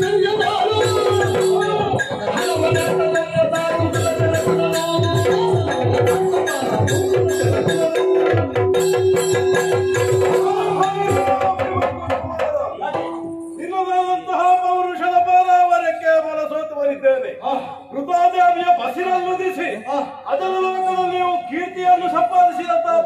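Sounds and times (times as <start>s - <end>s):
ankle bells jingling: 0.0s - 12.2s
drums in fast beat: 0.0s - 13.5s.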